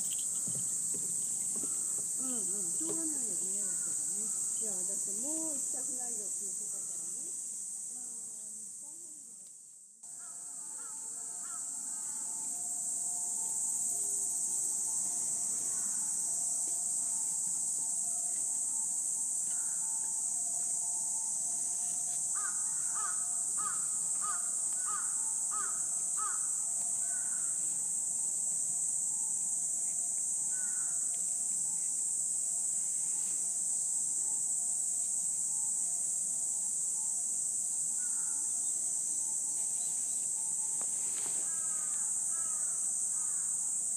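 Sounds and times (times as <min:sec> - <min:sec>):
insects shrilling: 0:00.0 - 0:09.1, 0:10.1 - 0:43.9
bird calling: 0:22.4 - 0:27.4.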